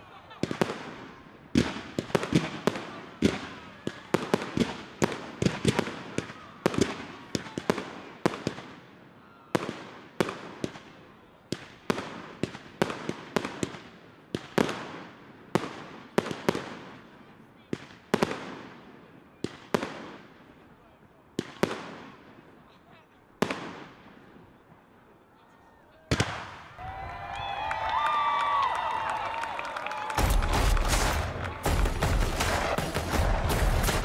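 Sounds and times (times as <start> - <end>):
fireworks bangs: 0.0 - 8.8, 26.1 - 27.0, 28.6 - 34.0.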